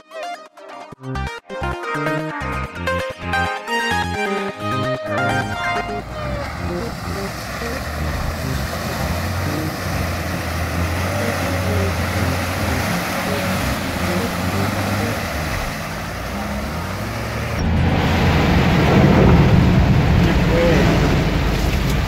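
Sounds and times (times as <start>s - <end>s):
water churning around wheels: 5.2s - 22.0s
car engine running under load: 5.4s - 22.0s
water hitting windshield: 5.6s - 22.0s.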